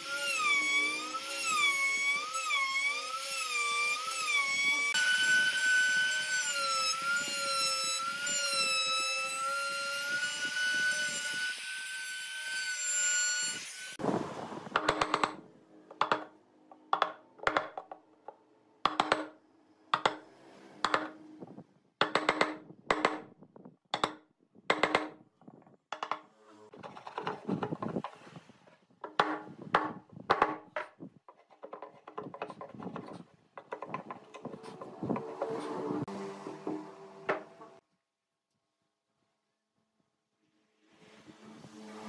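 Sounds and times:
chisel scraping wood: 31.3 - 37.8.

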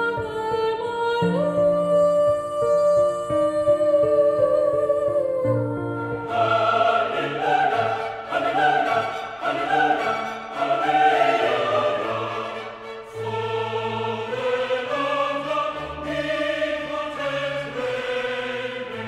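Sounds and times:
choir singing: 5.8 - 19.0
orchestral accompaniment: 6.2 - 19.0.

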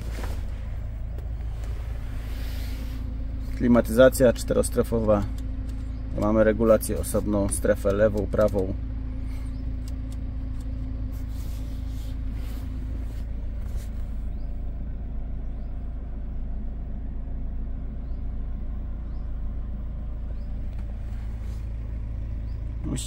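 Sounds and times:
diesel engine idling: 0.0 - 23.0
light clicks: 5.0 - 10.8.

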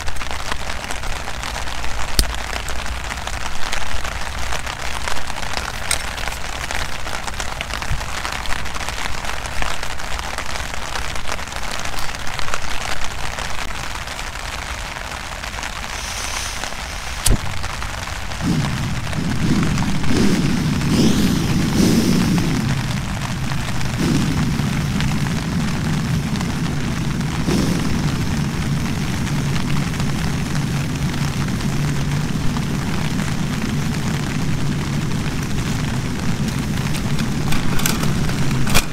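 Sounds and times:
rain falling: 0.0 - 38.9
camping stove burner rushing: 15.9 - 17.6, 18.4 - 25.7.

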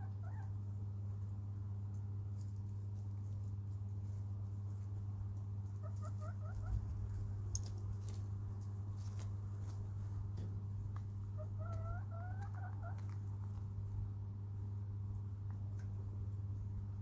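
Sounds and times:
hen calling: 0.0 - 0.6, 5.7 - 6.8, 11.2 - 13.2
steady low hum: 0.0 - 17.0.

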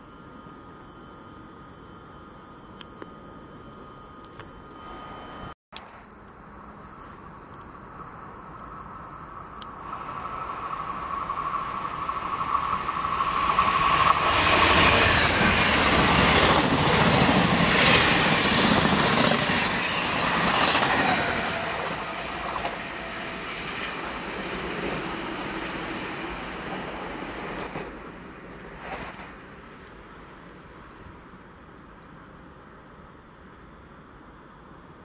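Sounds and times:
train wheel squeal: 3.2 - 5.6, 9.9 - 28.0.

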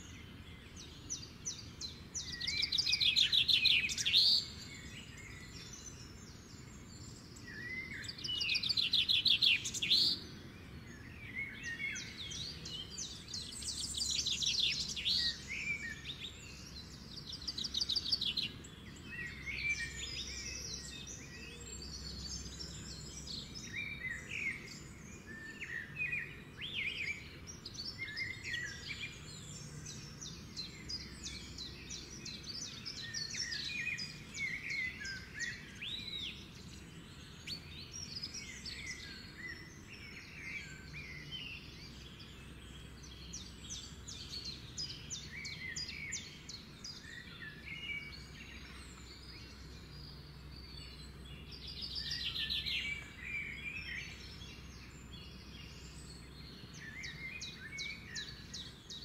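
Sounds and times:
birds chirping and singing: 0.0 - 59.0.

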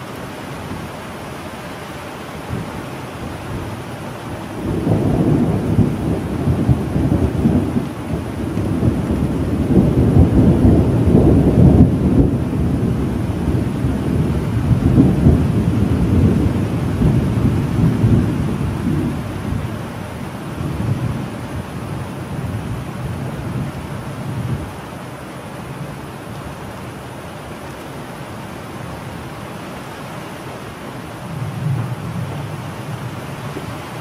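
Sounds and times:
steady rain: 0.0 - 34.0
rolling thunder rumble: 2.5 - 24.8, 31.2 - 34.0.

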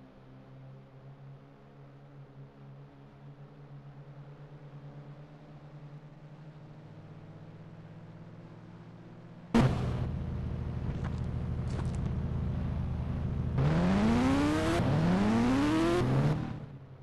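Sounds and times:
steady rushing noise: 9.6 - 15.2
vehicle engine accelerating: 9.6 - 16.8.

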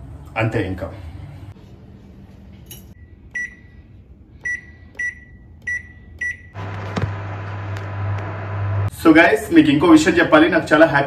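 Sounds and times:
microwave running hum: 4.4 - 9.0.

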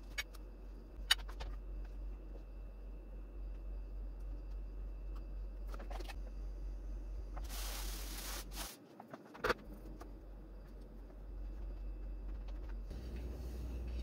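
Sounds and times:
low steady hum: 0.0 - 14.0
hands rustling in flour: 7.4 - 8.8.

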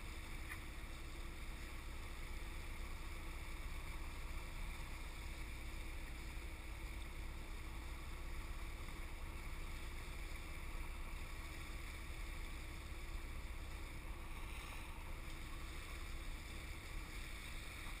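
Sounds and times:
faint steady hum: 0.0 - 18.0
wind and water rumble: 0.0 - 18.0.

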